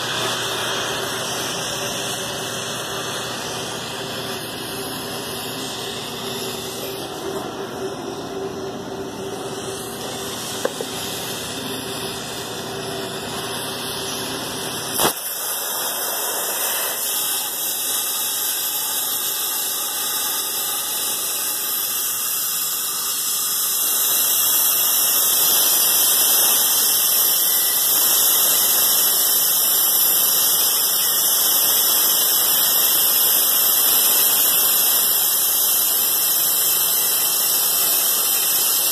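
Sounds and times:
cutting torch hissing: 0.0 - 38.9
sharp click: 15.0 - 15.2.

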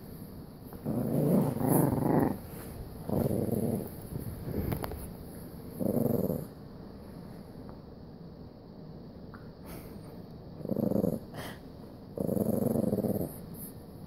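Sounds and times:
dog growling: 0.8 - 4.8, 5.7 - 6.6, 10.6 - 13.7.

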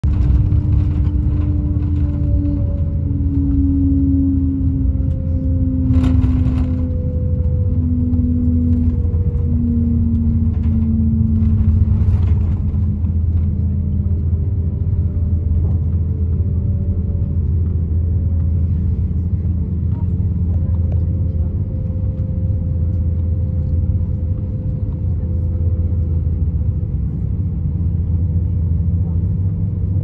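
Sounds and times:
humming tone falling in pitch: 0.0 - 18.3
aircraft cabin rumble: 0.0 - 30.0.

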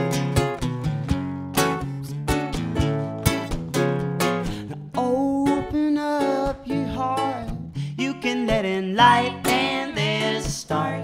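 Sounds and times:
acoustic guitar strumming: 0.0 - 11.0
ukulele strumming: 0.0 - 11.0
person singing: 4.9 - 11.0.

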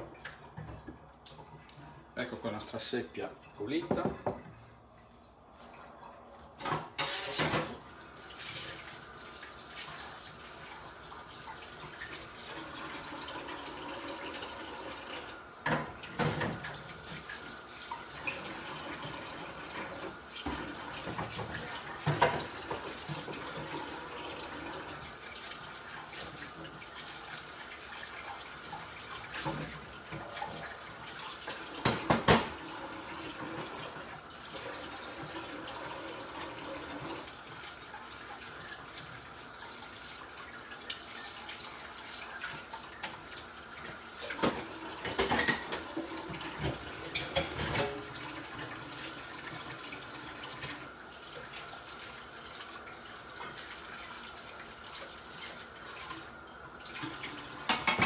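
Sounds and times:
tap running into sink: 3.8 - 4.5, 31.7 - 32.7.

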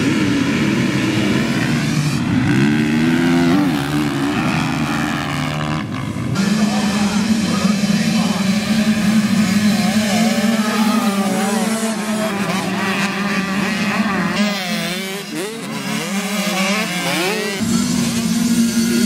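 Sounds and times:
dirt bikes revving past: 0.0 - 19.0
low engine drone: 16.8 - 19.0.

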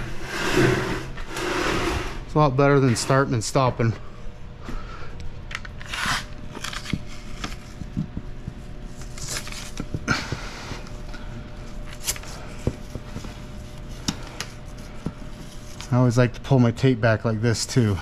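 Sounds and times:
faint hum: 0.0 - 18.0
paper rustling: 5.7 - 10.0.

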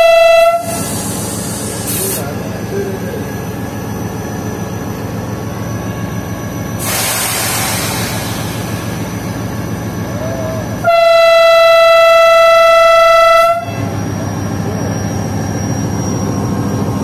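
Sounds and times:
air brake hiss: 0.6 - 2.4, 6.8 - 9.2
locomotive engine idling: 0.7 - 10.9.

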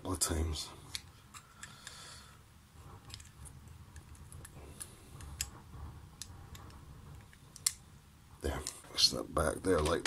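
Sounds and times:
plastic parts clicking: 3.0 - 3.4, 6.2 - 7.8.

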